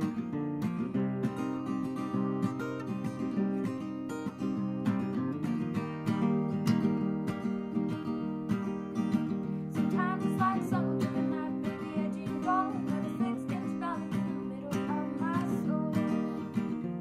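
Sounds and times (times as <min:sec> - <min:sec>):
strummed acoustic guitar chords: 0:00.0 - 0:17.0.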